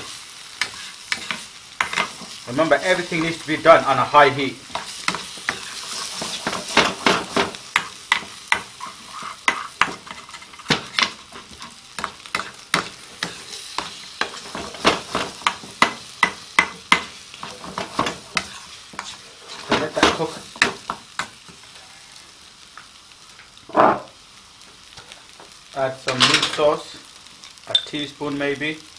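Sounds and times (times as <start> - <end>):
food sizzling in pan: 0.0 - 28.9
metal spoon scraping frying pan: 0.6 - 2.4, 7.8 - 14.6, 17.4 - 19.8.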